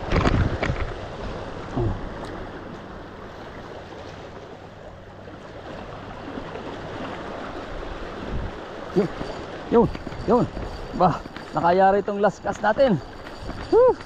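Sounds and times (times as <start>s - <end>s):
wind: 0.0s - 14.0s
sea water washing on rocks: 5.4s - 14.0s.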